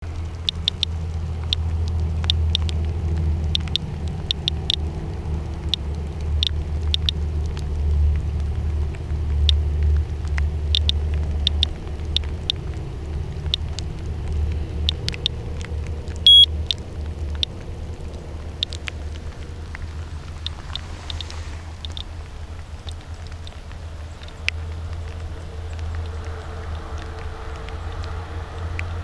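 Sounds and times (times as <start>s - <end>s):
low rumble: 0.0s - 29.0s
geiger counter clicking: 0.4s - 2.8s, 3.5s - 4.9s, 5.6s - 7.6s, 9.4s - 9.6s, 10.3s - 12.6s, 14.8s - 17.6s, 20.4s - 22.1s
high beep: 16.3s - 16.5s.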